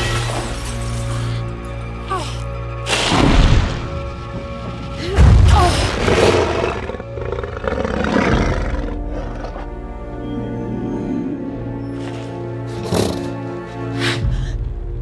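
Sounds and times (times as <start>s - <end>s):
dramatic orchestral music: 0.0s - 15.0s.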